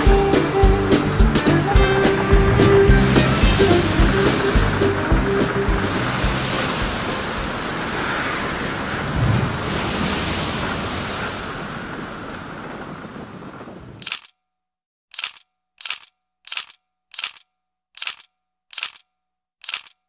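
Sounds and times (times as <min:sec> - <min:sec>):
water splashing against boat hull: 0:01.4 - 0:12.5
wind buffeting microphone: 0:01.8 - 0:14.1.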